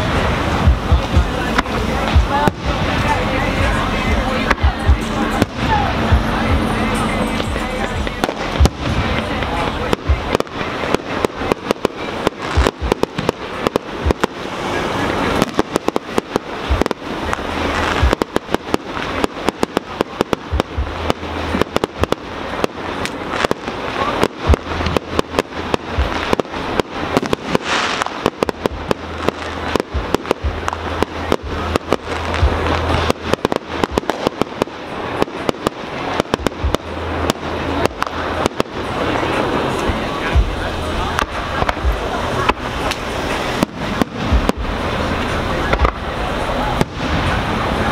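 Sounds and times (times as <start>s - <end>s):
fireworks bangs and crackling pops: 0.0s - 47.9s.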